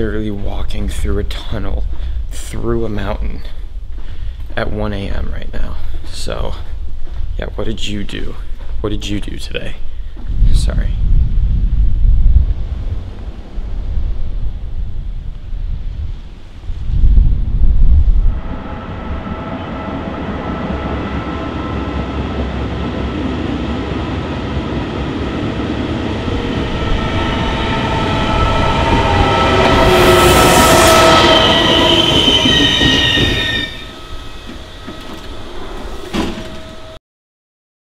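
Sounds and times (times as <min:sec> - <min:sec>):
passenger train arriving: 0:18.0 - 0:37.0
train wheel squeal: 0:18.3 - 0:37.0.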